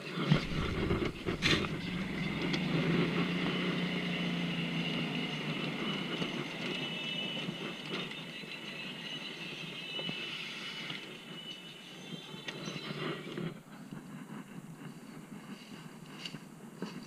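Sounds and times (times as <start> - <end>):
cart rumbling and rattling: 0.0 - 17.0
motor hum: 0.3 - 6.3.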